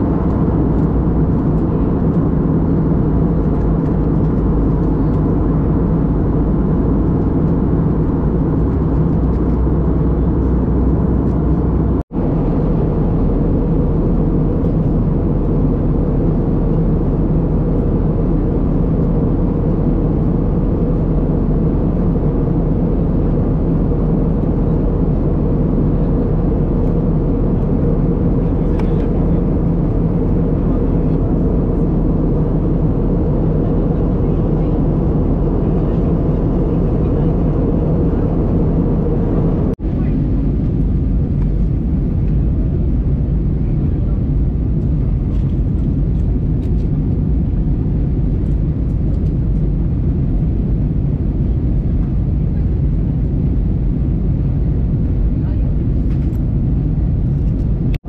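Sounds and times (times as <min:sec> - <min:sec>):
jet engine drone: 0:00.0 - 0:58.0.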